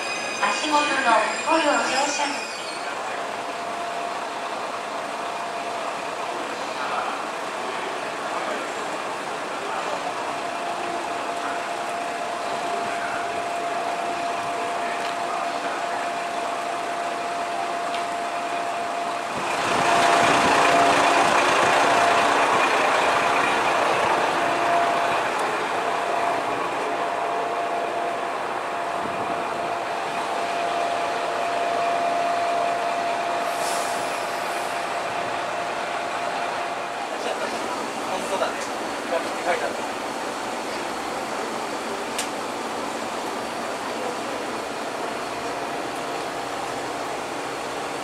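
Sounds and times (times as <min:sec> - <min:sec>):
diesel railcar engine idling: 0:00.0 - 0:48.0
rushing noise: 0:00.0 - 0:48.0
constant whine: 0:03.1 - 0:33.5
brief high hiss: 0:33.5 - 0:34.8.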